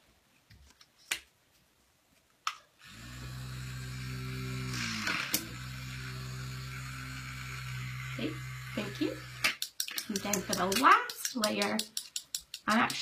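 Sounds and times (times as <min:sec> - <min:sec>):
handheld fan motor hum: 0:02.8 - 0:11.2.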